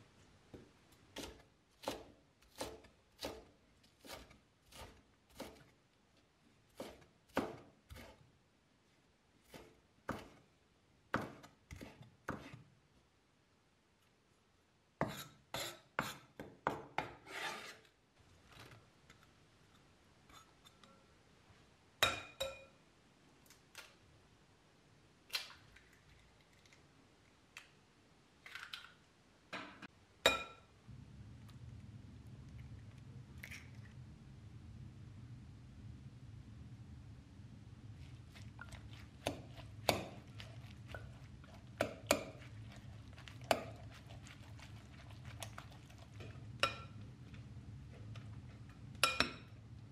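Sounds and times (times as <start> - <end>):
low steady hum: 29.9 - 49.9.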